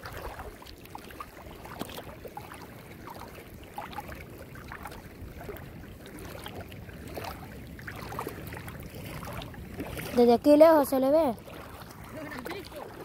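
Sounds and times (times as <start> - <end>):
water washing around legs: 0.0 - 13.0
wind rumble on microphone: 0.0 - 13.0.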